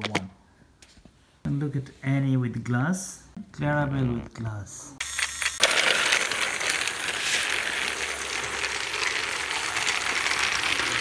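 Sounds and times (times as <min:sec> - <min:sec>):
toy train motor whirring: 0:05.0 - 0:11.0
wheels clicking on plastic track: 0:05.0 - 0:11.0.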